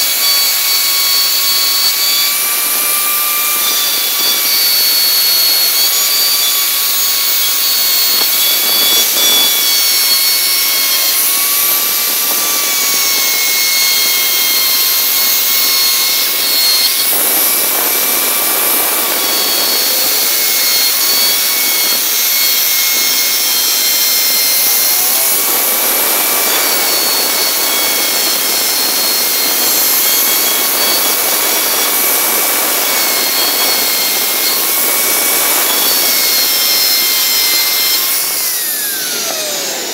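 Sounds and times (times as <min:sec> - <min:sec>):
router bit cutting wood: 0:00.0 - 0:39.9
router whining: 0:00.0 - 0:39.9.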